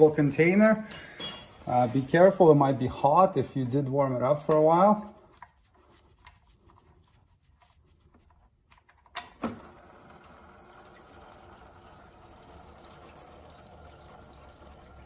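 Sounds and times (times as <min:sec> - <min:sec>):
oil pouring into a container: 0:09.4 - 0:15.0.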